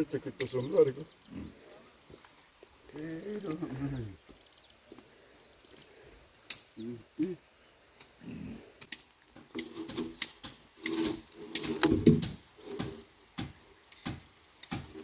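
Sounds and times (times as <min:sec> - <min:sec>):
sharp clicks and knocks: 0:08.8 - 0:15.0.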